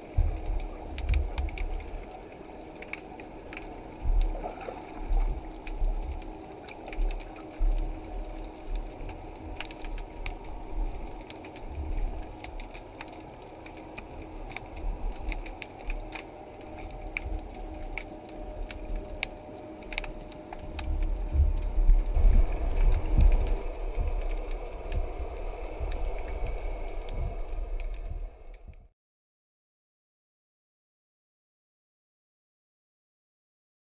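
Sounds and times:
rumble of moving water: 0.0 - 28.9
underwater clicks: 0.1 - 28.8.

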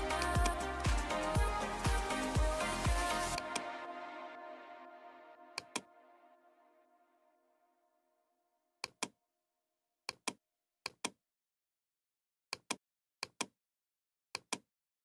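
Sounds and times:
computer mouse clicking: 8.8 - 9.2, 10.1 - 11.2, 12.5 - 13.5, 14.4 - 14.7.

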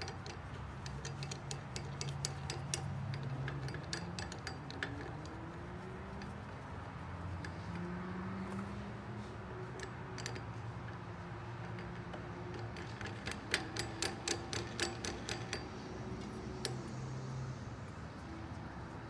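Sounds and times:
plastic knobs clicking: 0.0 - 6.6.

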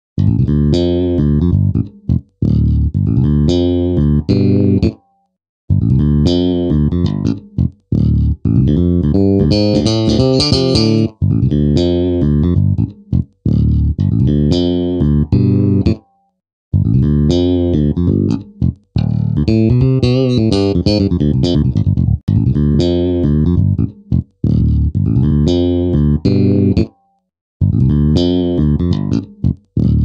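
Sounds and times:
bass and guitar riffs: 0.2 - 5.0, 5.7 - 16.0, 16.7 - 27.0, 27.6 - 30.0.

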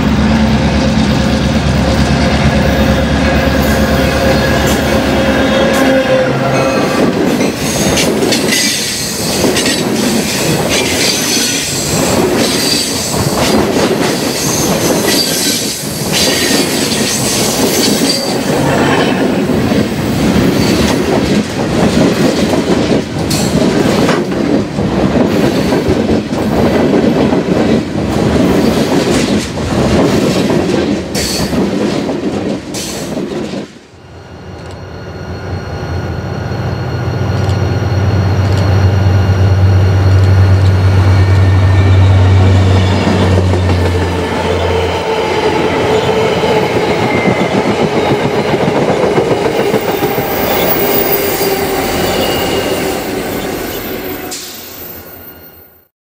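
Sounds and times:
diesel locomotive passing: 0.0 - 55.8
high-pitched wheel squeal: 34.3 - 43.1, 49.6 - 55.8.

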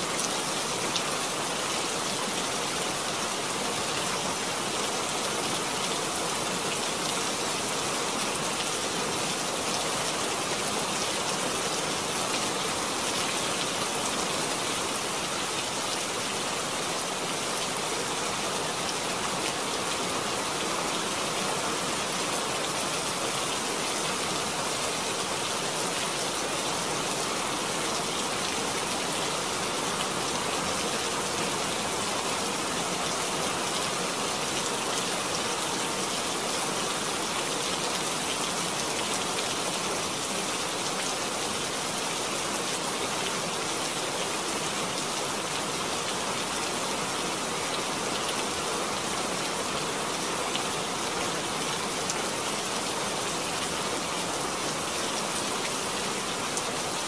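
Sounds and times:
steady rain hiss: 0.0 - 57.0.

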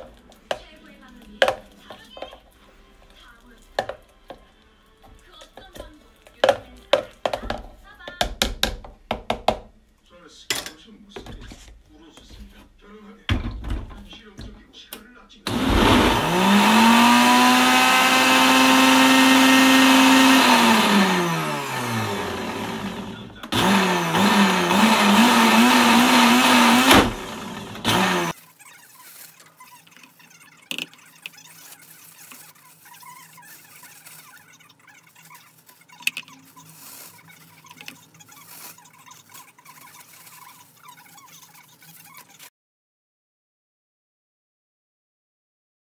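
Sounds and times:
blender motor whining: 15.5 - 28.4.

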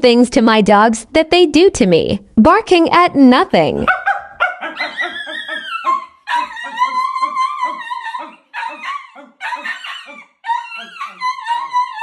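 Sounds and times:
dogs howling and yapping: 3.9 - 12.0.

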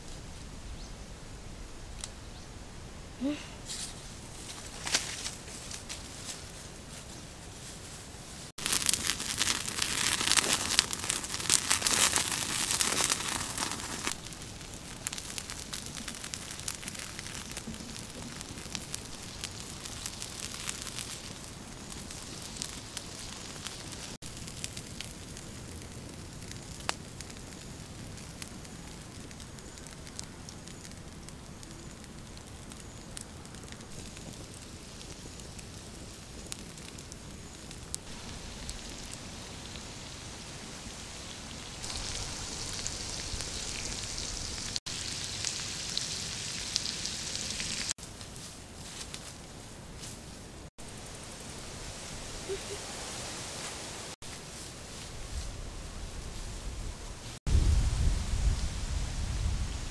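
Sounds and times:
wood fire crackling: 3.2 - 59.9
meat sizzling on hot stone: 8.5 - 48.0
sharp fire pops: 8.6 - 49.4.

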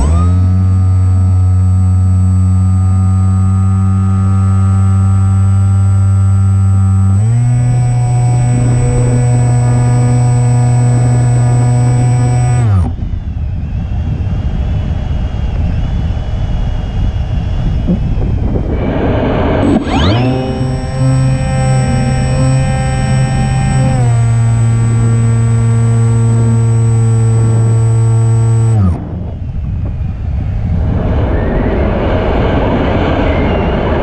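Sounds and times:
electric motor and propeller whine: 0.0 - 34.0
wind rushing over microphone: 7.2 - 34.0.

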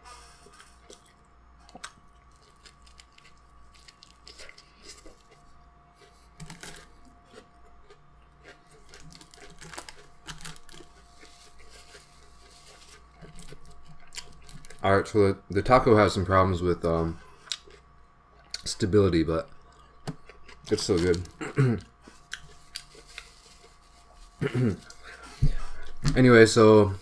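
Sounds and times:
person chewing with wet mouth sounds: 0.1 - 14.8, 17.2 - 18.7, 19.5 - 26.0
paper wrapper crinkling: 8.7 - 14.9, 20.7 - 21.4, 22.3 - 25.2.

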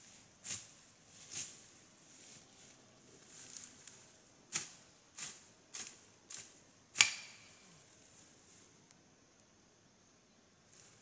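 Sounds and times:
plant stems snapping: 7.0 - 7.5.

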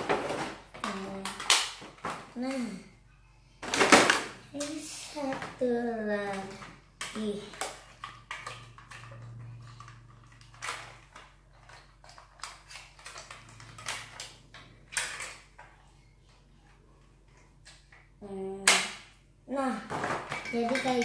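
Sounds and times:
plastic toy parts clicking: 7.0 - 15.6.

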